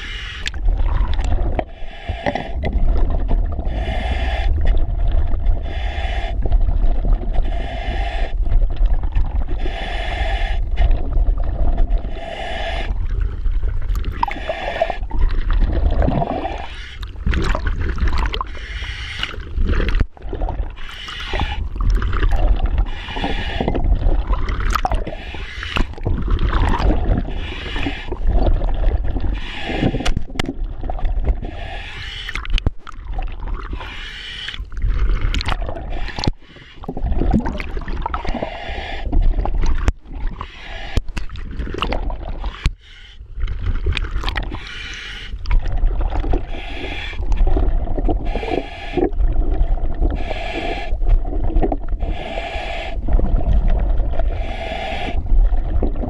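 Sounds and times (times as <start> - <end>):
regulator hiss on inhale: 0.0 - 0.6, 1.6 - 2.7, 3.6 - 4.7, 5.5 - 6.6, 7.3 - 8.5, 9.5 - 11.2, 12.0 - 13.4, 14.2 - 15.2, 16.4 - 17.1, 18.5 - 19.5, 20.8 - 21.7, 22.8 - 23.8, 25.0 - 26.0, 27.2 - 28.2, 29.3 - 30.3, 31.4 - 32.4, 33.7 - 34.7, 35.8 - 36.9, 38.2 - 39.5, 40.4 - 41.1, 42.4 - 43.3, 44.5 - 45.5, 46.4 - 47.4, 48.2 - 49.2, 50.1 - 51.2, 51.9 - 55.3
bubbling exhale underwater: 12.7 - 18.5, 19.3 - 31.6, 34.7 - 40.4, 41.3 - 42.6, 45.4 - 56.0.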